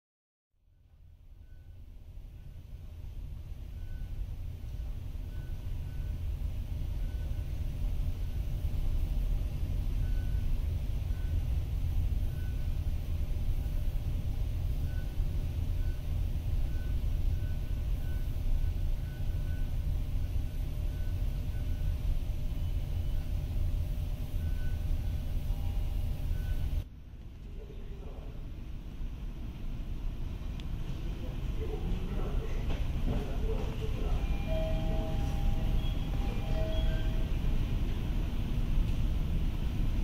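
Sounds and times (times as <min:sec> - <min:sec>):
low rumble of road traffic: 0:00.6 - 0:40.0
faint short beeps: 0:01.4 - 0:02.6, 0:03.7 - 0:06.3, 0:06.9 - 0:07.6, 0:10.0 - 0:12.8, 0:14.8 - 0:26.8, 0:32.1 - 0:38.0.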